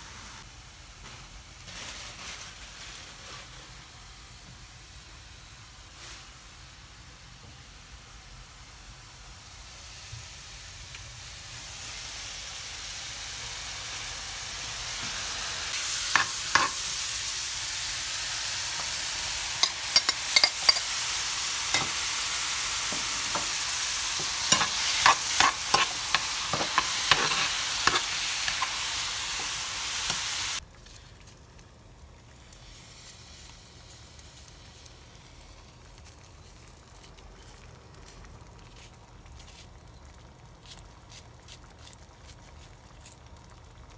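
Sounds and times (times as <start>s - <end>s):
vegetables sizzling in a frying pan: 0.0s - 43.9s
utensil scraping and knocking pan: 22.9s - 30.3s.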